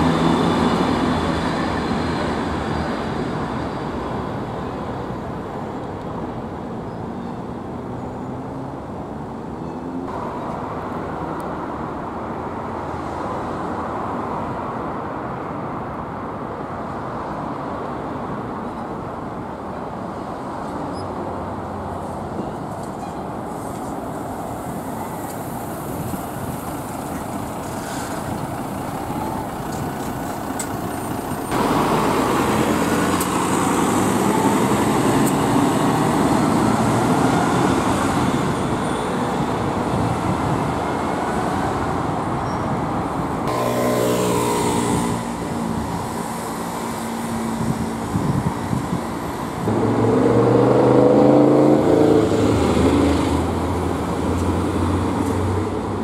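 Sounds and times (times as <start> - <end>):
vehicle whine pulling away: 0.0 - 5.0, 24.3 - 56.0
bus driving past: 0.0 - 56.0
road traffic noise: 0.0 - 56.0
engine drone: 24.9 - 41.5, 43.4 - 56.0.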